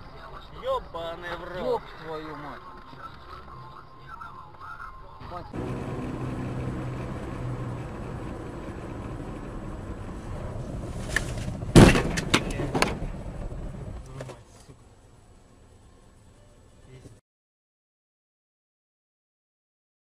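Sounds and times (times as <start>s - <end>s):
car road and engine noise: 0.0s - 17.2s
sharp knocks: 11.7s - 13.0s
loud collision bang: 11.7s - 13.1s.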